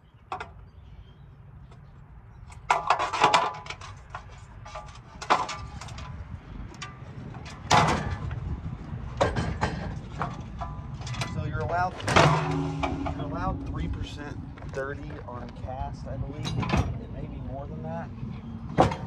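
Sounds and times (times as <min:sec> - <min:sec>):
ringing metal clanks and knocks: 0:06.8 - 0:08.4, 0:09.2 - 0:15.4, 0:16.4 - 0:17.0.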